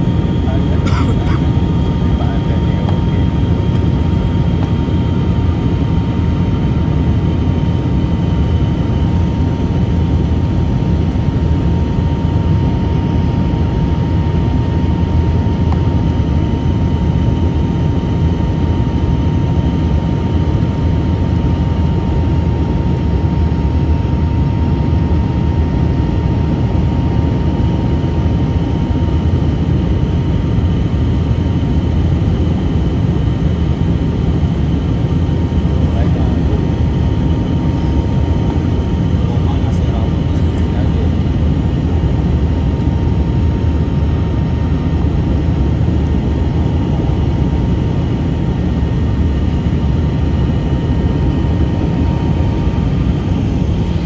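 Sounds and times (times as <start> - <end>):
deep jet engine rush: 0.0 - 54.0.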